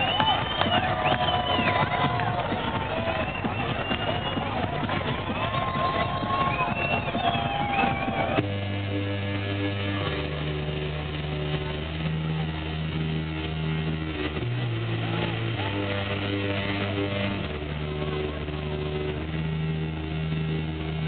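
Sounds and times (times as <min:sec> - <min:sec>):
faint voices: 0:00.0 - 0:08.4
amplified music with low chords: 0:00.0 - 0:21.0.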